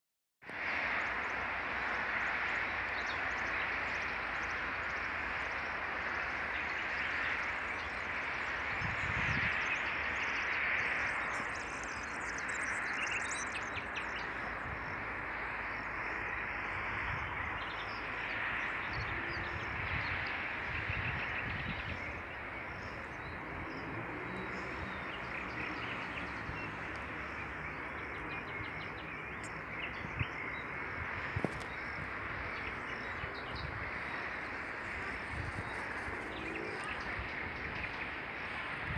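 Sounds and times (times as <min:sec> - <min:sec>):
steady outdoor hiss: 0:00.5 - 0:38.9
bird chirps: 0:02.6 - 0:15.0.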